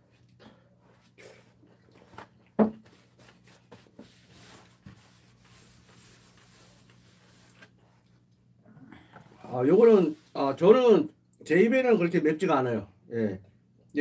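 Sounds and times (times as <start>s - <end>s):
knock on table: 2.6s - 2.8s
tissue rubbing on wooden tabletop: 2.8s - 8.0s, 9.4s - 10.5s.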